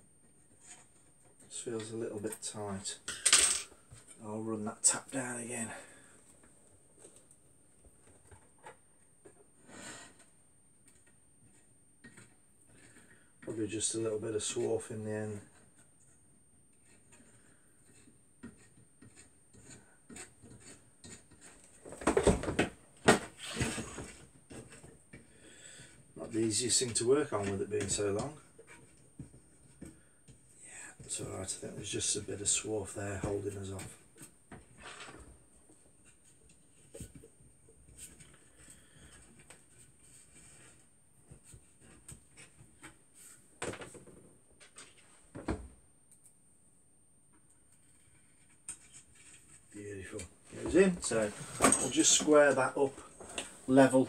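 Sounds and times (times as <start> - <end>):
tools rustling and clicking: 51.0 - 53.6.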